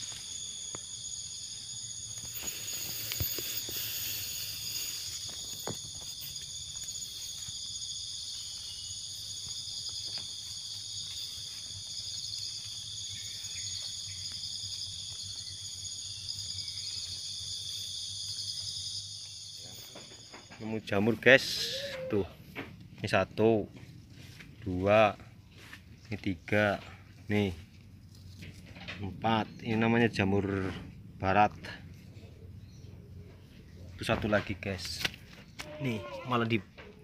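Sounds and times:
footsteps on dry leaves: 0.0s - 15.5s
insects chirring: 0.0s - 37.0s.

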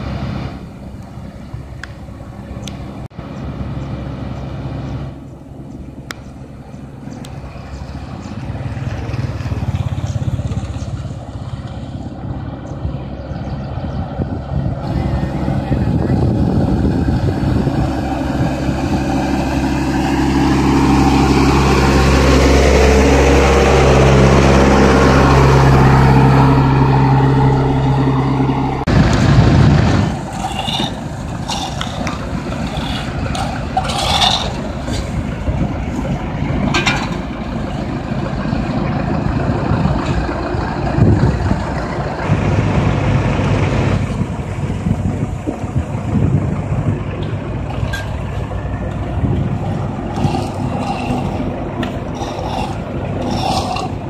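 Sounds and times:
asphalt paver humming: 0.0s - 54.0s
truck engine running: 0.0s - 54.0s
spraying on road: 29.3s - 36.1s, 47.8s - 54.0s
short scrapes and knocks: 30.1s - 35.2s.

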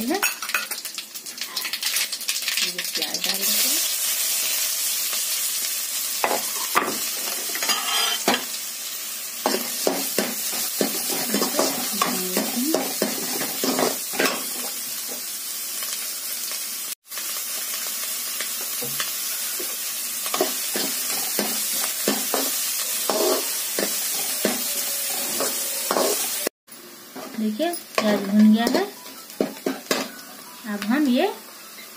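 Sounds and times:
onion sizzling in oil: 0.0s - 31.9s
spoon scraping and clinking pan: 7.6s - 8.4s.

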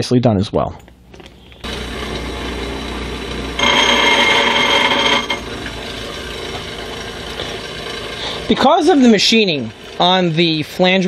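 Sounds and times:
bench grinder running: 1.6s - 11.0s
metal being ground: 1.7s - 6.8s.

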